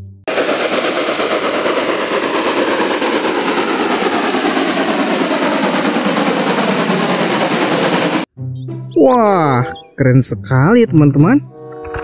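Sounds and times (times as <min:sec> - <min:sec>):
steam locomotive chuffing: 0:00.3 - 0:08.3.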